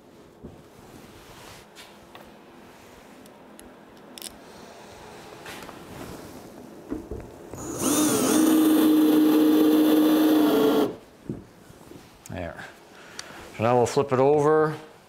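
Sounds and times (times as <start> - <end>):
cordless drill motor whining: 7.6 - 11.0.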